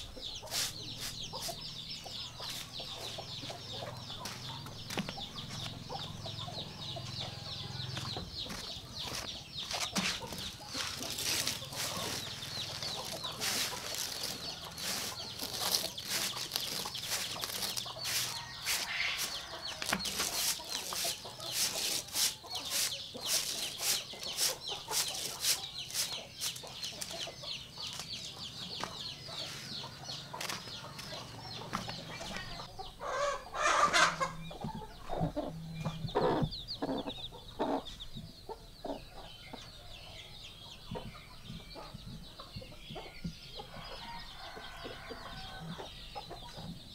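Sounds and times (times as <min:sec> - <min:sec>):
chickens clucking: 0:00.0 - 0:46.9
broom sweeping dry leaves: 0:00.4 - 0:01.6, 0:02.5 - 0:02.8, 0:09.1 - 0:27.2, 0:29.5 - 0:29.7.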